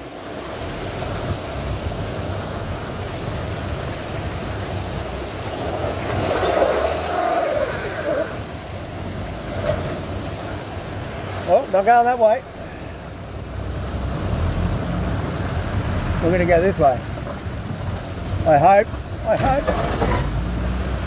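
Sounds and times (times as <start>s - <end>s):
vehicle engine under load: 0.4s - 11.4s, 13.4s - 21.0s
high-pitched squeal: 5.6s - 8.6s.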